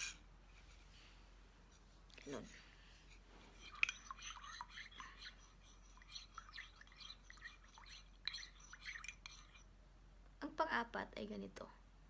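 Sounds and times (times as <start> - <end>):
spoon stirring in ceramic mug: 3.4 - 9.7.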